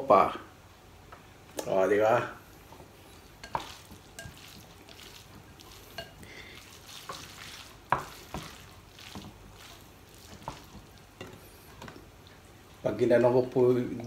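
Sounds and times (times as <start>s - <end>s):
chopsticks stirring noodles in bowl: 2.6s - 12.4s.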